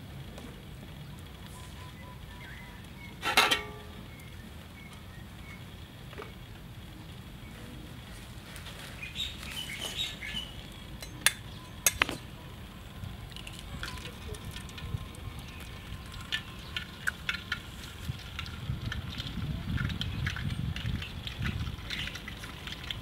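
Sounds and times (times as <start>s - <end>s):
steady low rumble: 0.0s - 23.0s
metal utensils clinking on wok: 3.2s - 3.9s.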